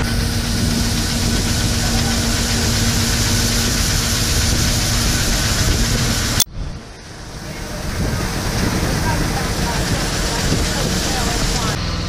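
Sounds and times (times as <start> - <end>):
harvester engine and auger drone: 0.0 - 12.0.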